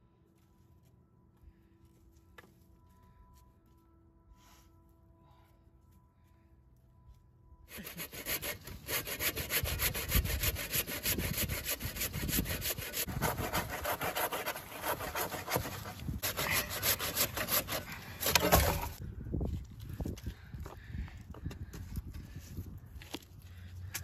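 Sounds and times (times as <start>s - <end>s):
hand saw cutting wooden log: 7.7s - 19.0s.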